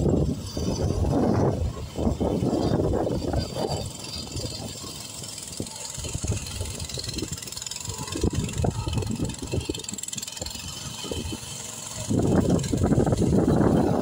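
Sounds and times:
small engine running low revs: 0:00.0 - 0:14.0.

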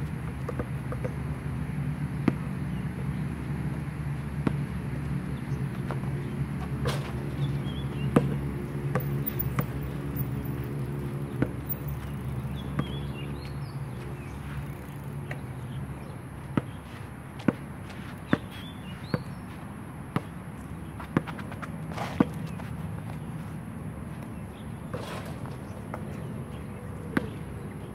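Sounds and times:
basketball bouncing on hard court: 0:05.8 - 0:13.5, 0:16.5 - 0:19.4, 0:20.1 - 0:20.4, 0:21.0 - 0:23.2.

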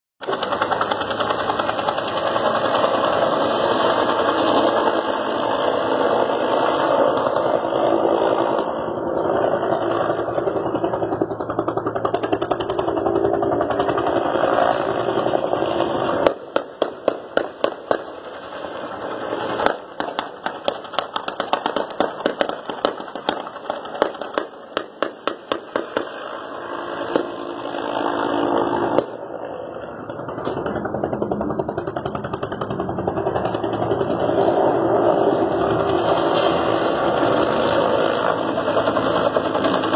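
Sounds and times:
helicopter running: 0:00.2 - 0:39.9
rifle shots: 0:14.3 - 0:26.4.

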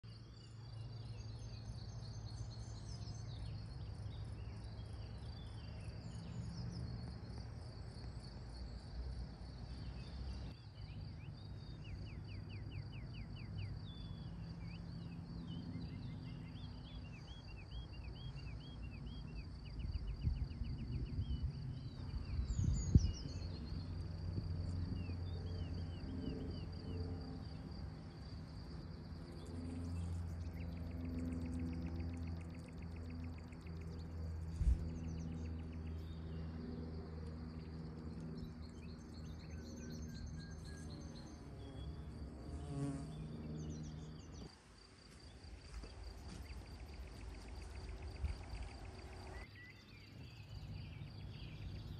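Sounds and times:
high insect drone: 0:00.1 - 0:51.9
birds chirping and trilling: 0:09.6 - 0:27.0, 0:29.3 - 0:36.6, 0:37.5 - 0:51.9.

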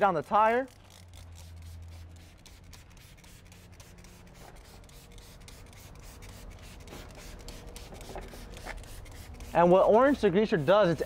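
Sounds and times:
spray bottle hissing: 0:00.7 - 0:10.6.

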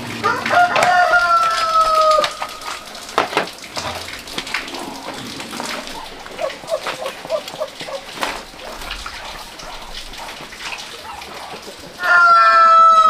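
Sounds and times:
water splashing: 0:00.0 - 0:13.0
rooster crowing: 0:00.2 - 0:02.7, 0:12.0 - 0:13.0
knocks: 0:03.1 - 0:04.1.

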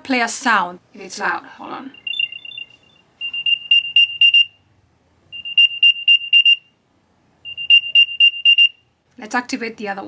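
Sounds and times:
high-pitched chirping tone: 0:01.9 - 0:04.5, 0:05.3 - 0:06.6, 0:07.4 - 0:08.8.

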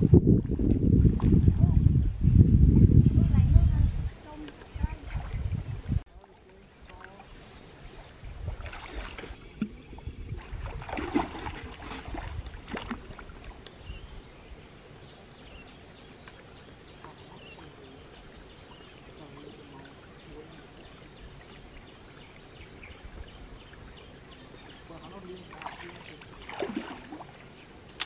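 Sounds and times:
hands splashing in stream water: 0:08.5 - 0:09.8, 0:10.4 - 0:13.6, 0:25.5 - 0:28.0.

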